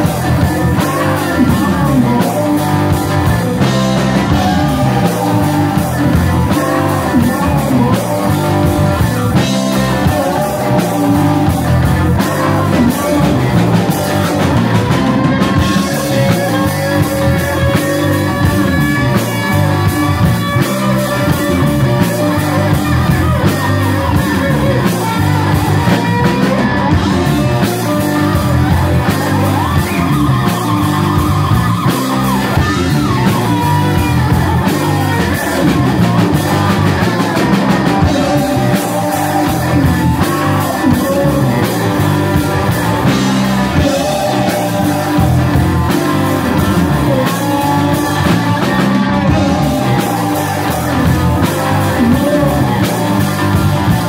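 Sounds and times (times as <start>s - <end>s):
bass guitar: 0.0s - 54.0s
drums: 0.0s - 54.0s
electric guitars: 0.0s - 54.0s
person singing: 0.0s - 54.0s.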